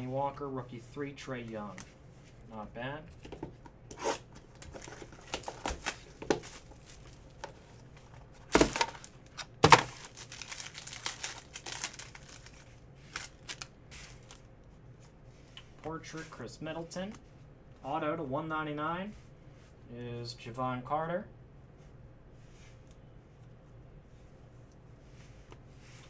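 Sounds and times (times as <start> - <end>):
cards rustling: 8.4 - 14.5
plastic wrapper crinkling: 8.5 - 14.4.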